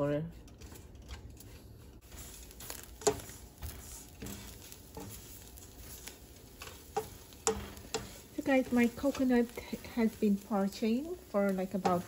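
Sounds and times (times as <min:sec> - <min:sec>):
spatula stirring coconut rustling: 0:00.0 - 0:12.0
spatula tapping on pan: 0:06.6 - 0:08.2, 0:11.7 - 0:12.0.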